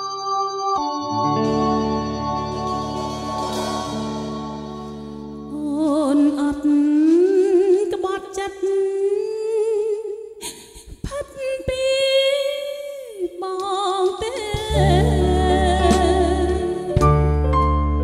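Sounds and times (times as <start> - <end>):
band with bass and keyboard: 0.0 - 5.8, 14.6 - 18.0
woman singing with vibrato: 5.5 - 17.0.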